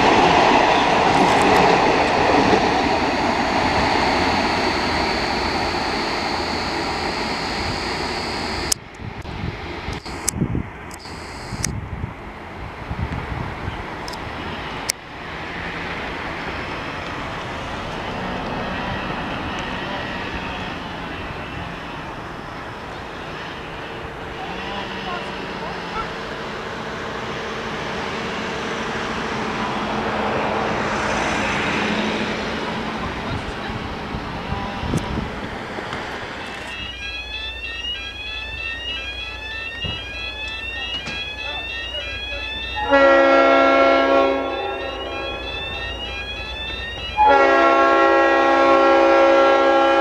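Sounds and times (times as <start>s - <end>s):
diesel locomotive engine drone: 0.0s - 50.0s
level crossing alarm tone: 0.4s - 8.8s, 10.9s - 11.7s, 36.2s - 50.0s.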